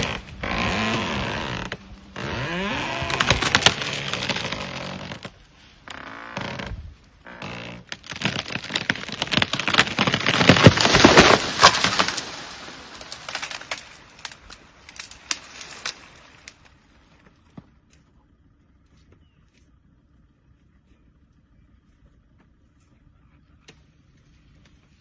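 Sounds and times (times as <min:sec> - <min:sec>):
twigs snapping: 0:00.0 - 0:05.3, 0:07.7 - 0:16.8
tree crashing down: 0:00.0 - 0:16.8
tree wood cracking and snapping: 0:00.0 - 0:16.8.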